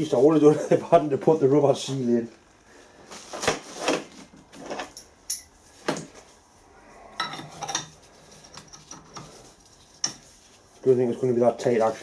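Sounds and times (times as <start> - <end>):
light metallic clinks: 4.9 - 5.6.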